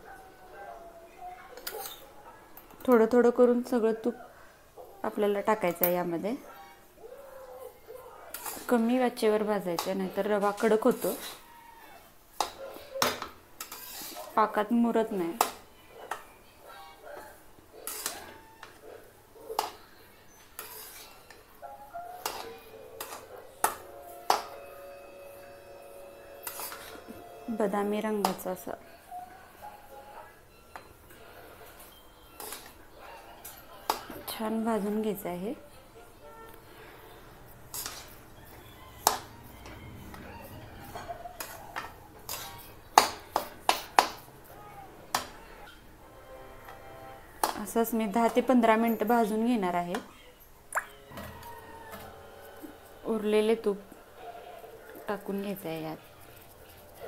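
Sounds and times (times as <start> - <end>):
spatula scraping semolina in pan: 8.3 - 8.9, 9.8 - 11.5, 13.6 - 14.4, 17.8 - 18.4, 20.4 - 21.5, 26.3 - 27.1, 37.6 - 40.2, 40.9 - 44.2
metal spatula stirring semolina: 8.3 - 11.6, 12.4 - 16.2, 17.8 - 18.8, 19.6 - 24.6, 25.5 - 28.8, 30.7 - 35.2, 36.6 - 45.7.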